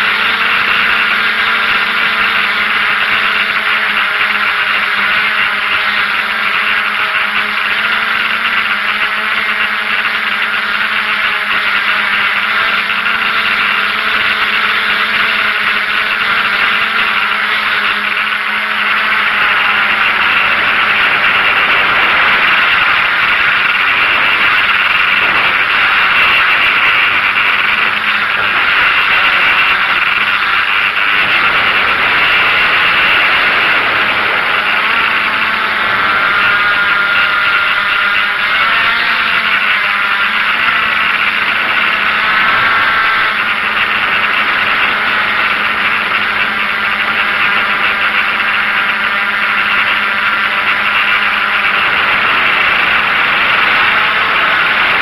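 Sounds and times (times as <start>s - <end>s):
drone motors whirring: 0.0s - 55.0s.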